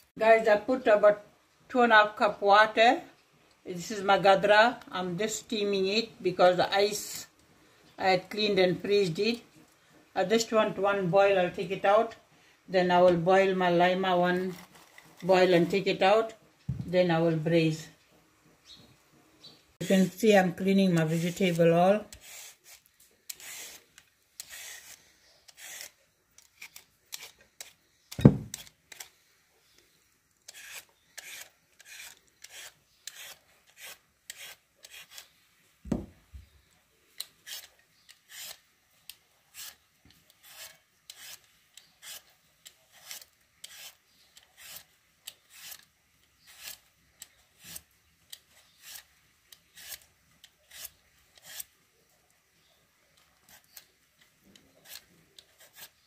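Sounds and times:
vegetable peeler scraping: 0:14.1 - 0:16.2, 0:19.8 - 0:29.1, 0:30.4 - 0:35.4, 0:37.2 - 0:38.7, 0:39.5 - 0:51.8, 0:53.2 - 0:53.9, 0:54.5 - 0:56.0
loud thumps: 0:16.7 - 0:17.0, 0:28.2 - 0:28.6, 0:35.8 - 0:36.4.

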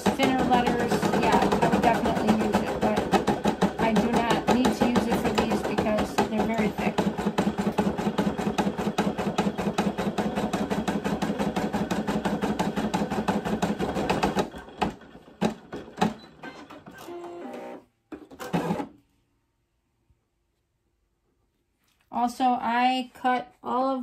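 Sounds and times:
embroidery machine stitching: 0:00.0 - 0:18.9.

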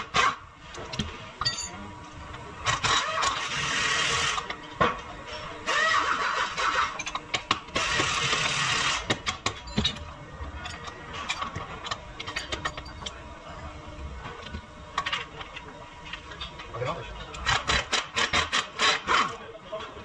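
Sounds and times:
metal tools clinking and knocking: 0:00.9 - 0:02.2, 0:07.0 - 0:07.4, 0:09.4 - 0:13.2.

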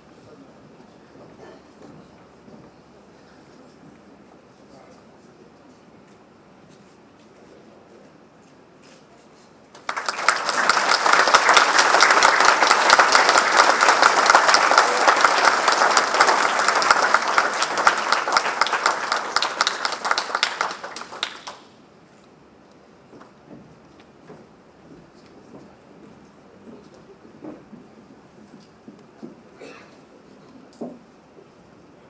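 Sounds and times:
crowd applauding: 0:09.8 - 0:21.8.

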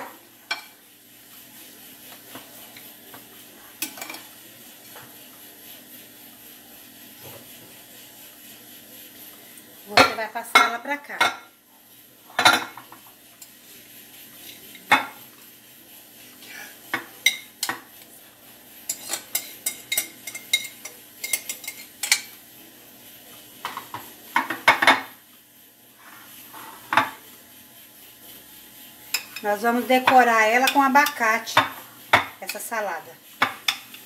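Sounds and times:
metal spoon clinking on glass bowls: 0:18.9 - 0:22.4.

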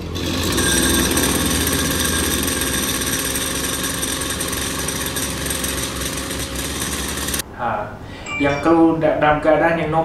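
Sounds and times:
brush cutter engine idling: 0:00.0 - 0:07.4.

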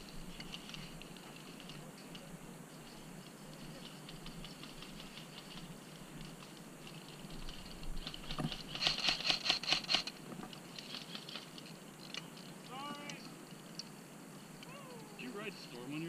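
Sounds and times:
airsoft guns firing clicks: 0:08.7 - 0:10.2.

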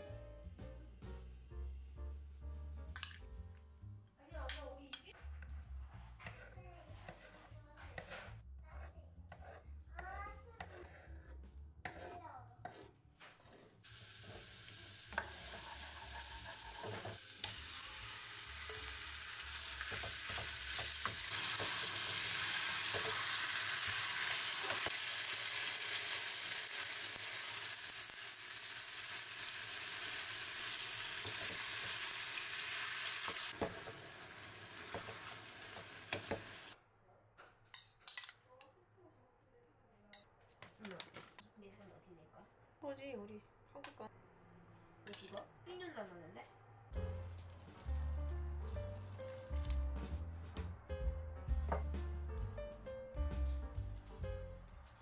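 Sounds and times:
wooden spatula knocking and scraping: 0:05.1 - 0:14.5, 0:15.1 - 0:17.2, 0:19.8 - 0:21.8, 0:33.3 - 0:34.0, 0:34.8 - 0:36.7, 0:51.5 - 0:52.1
chicken sizzling in a pan: 0:13.8 - 0:36.8.

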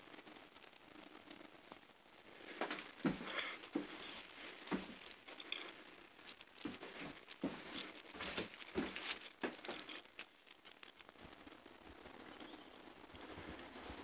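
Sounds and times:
soft footsteps: 0:01.8 - 0:12.1.

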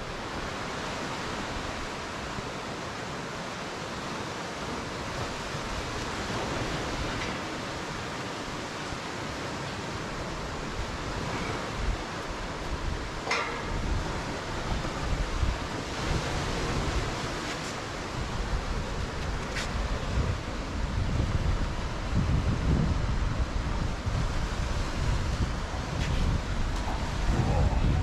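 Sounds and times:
waves and rushing water: 0:00.0 - 0:28.0
wind buffeting microphone: 0:10.2 - 0:28.0.

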